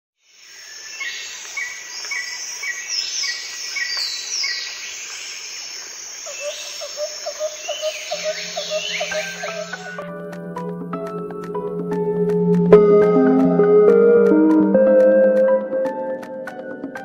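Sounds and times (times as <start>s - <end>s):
lower bird call: 6.3s - 10.0s.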